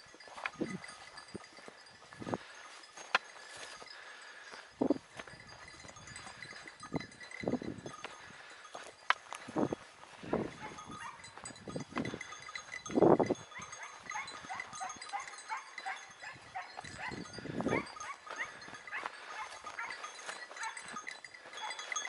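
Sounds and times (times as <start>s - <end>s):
animals calling: 10.2s - 11.4s, 13.3s - 22.0s.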